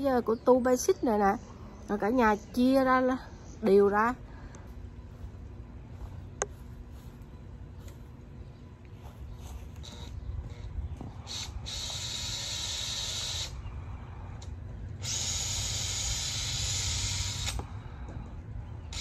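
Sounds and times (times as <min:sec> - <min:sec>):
power drill driving screws into wood: 0:15.0 - 0:17.6.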